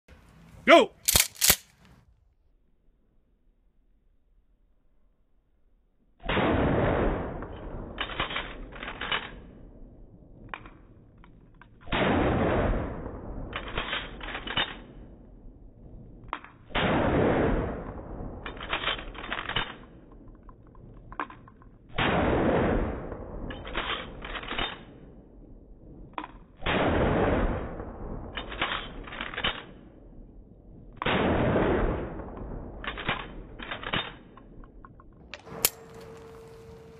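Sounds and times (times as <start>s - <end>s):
shotgun pump clacks: 1.0s - 1.9s
slowed shotgun blast: 6.2s - 10.6s, 11.8s - 20.4s, 21.9s - 34.8s.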